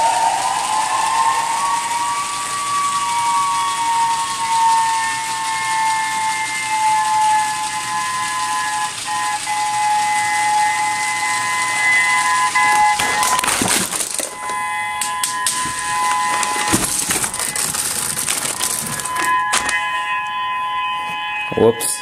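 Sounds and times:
electronic siren tone: 0.0s - 22.0s
plastic model clattering: 12.6s - 19.8s.

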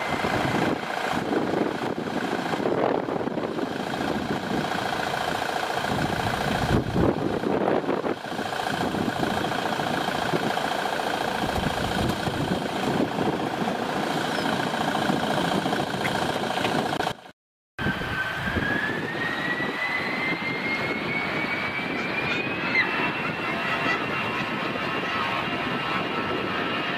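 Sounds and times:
jet whine rising in pitch: 0.0s - 3.6s, 17.8s - 26.9s
jet engines at takeoff: 0.0s - 26.9s.

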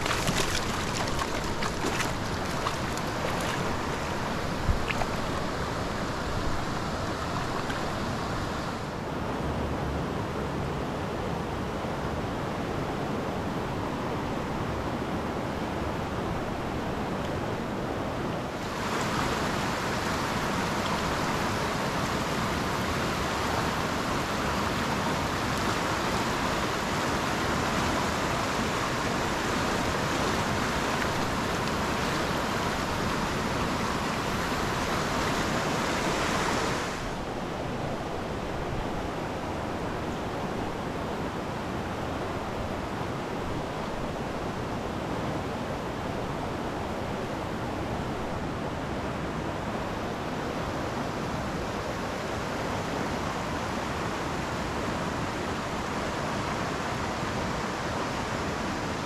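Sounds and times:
creek water rushing: 0.0s - 59.0s.

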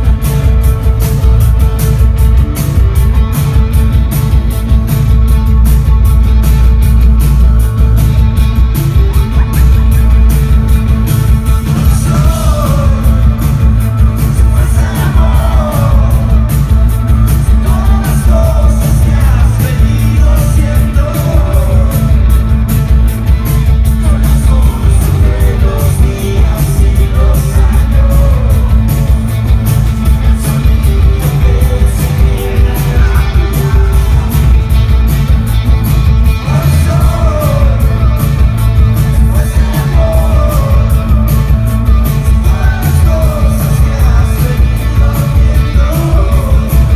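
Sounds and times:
live rock band playing: 0.0s - 46.9s
lead vocal singing: 11.6s - 35.1s, 36.2s - 46.9s.

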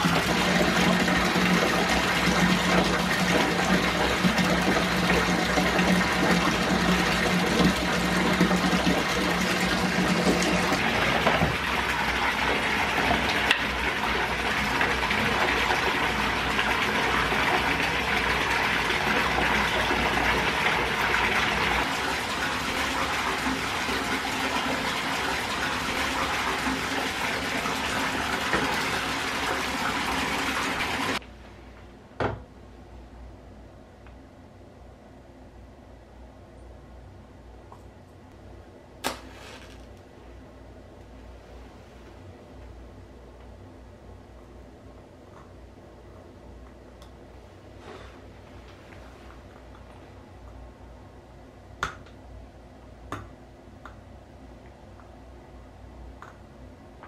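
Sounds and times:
tap water pouring into bathtub: 0.0s - 31.2s.

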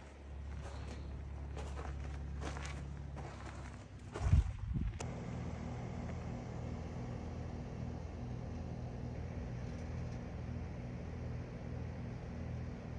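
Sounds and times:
low mechanical hum: 0.0s - 12.9s.

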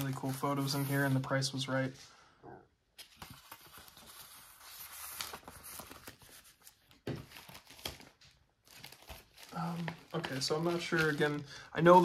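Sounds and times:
paper rustling and crinkling: 3.0s - 12.0s.

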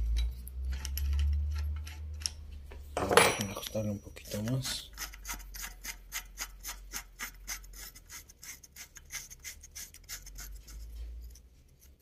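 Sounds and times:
wrench rasping: 3.6s - 12.0s.

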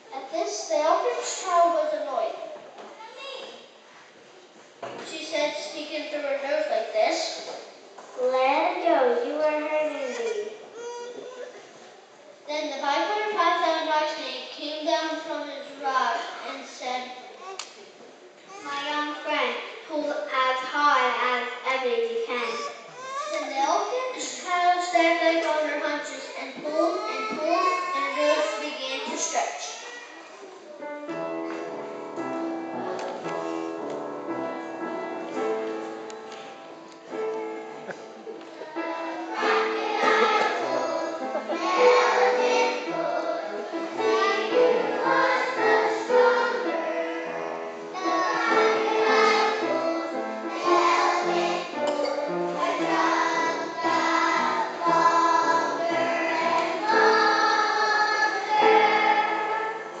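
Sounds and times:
musical accompaniment: 30.8s - 60.0s
children's choir singing: 38.5s - 60.0s.

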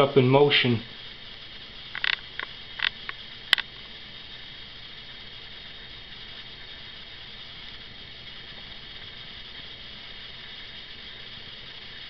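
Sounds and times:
steady faint hiss: 0.0s - 12.0s
short clicks and rustles: 2.0s - 3.7s.

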